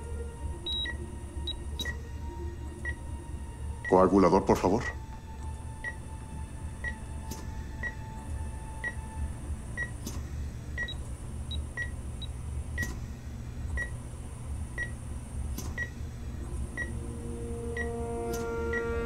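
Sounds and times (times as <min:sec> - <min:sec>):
low steady hum: 0:00.0 - 0:19.0
patient monitor beeping: 0:00.7 - 0:02.1, 0:03.7 - 0:04.9, 0:05.8 - 0:06.1, 0:06.8 - 0:07.1, 0:08.8 - 0:09.2, 0:10.8 - 0:12.9, 0:16.7 - 0:19.0.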